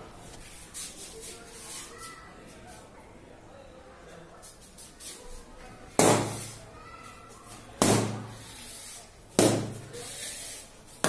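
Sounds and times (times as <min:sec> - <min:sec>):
balloons popping: 0:09.4 - 0:09.9.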